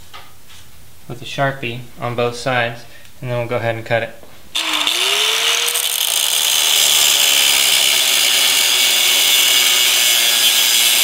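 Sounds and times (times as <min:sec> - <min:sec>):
angle grinder cutting steel: 0:04.6 - 0:11.0.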